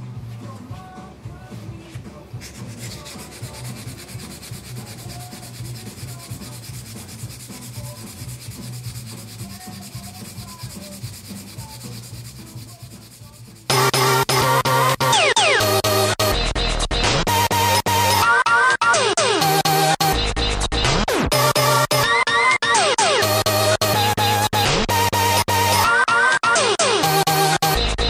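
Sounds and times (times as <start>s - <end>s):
soft music: 0.0s - 28.0s
hand rubbing wheel rim: 2.3s - 13.7s
loud electronic music: 13.6s - 28.0s.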